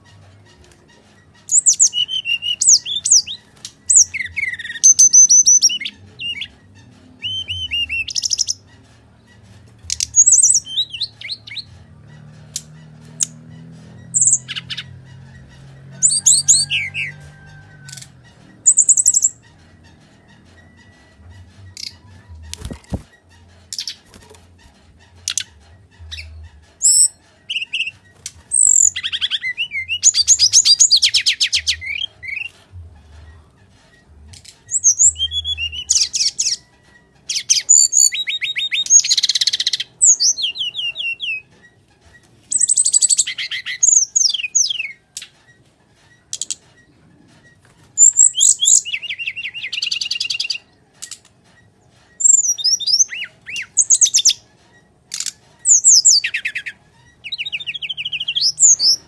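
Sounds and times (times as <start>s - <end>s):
bird singing whistles and trills: 1.5s - 6.5s, 7.2s - 8.6s, 34.7s - 36.6s, 52.2s - 54.4s, 55.2s - 59.0s.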